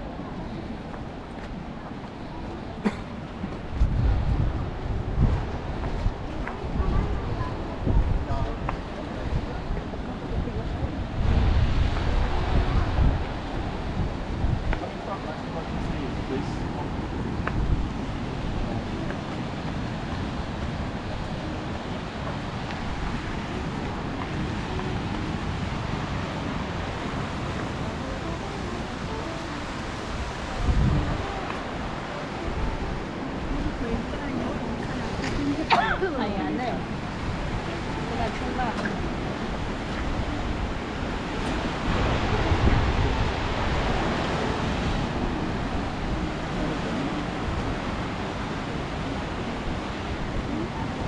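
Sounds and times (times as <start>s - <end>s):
ocean surf: 0.0s - 51.0s
wind on microphone: 0.0s - 51.0s.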